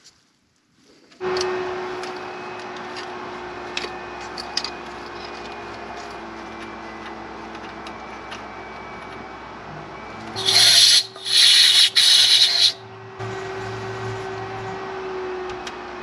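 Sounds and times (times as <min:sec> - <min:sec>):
motor-driven machine humming: 0:10.4 - 0:12.8.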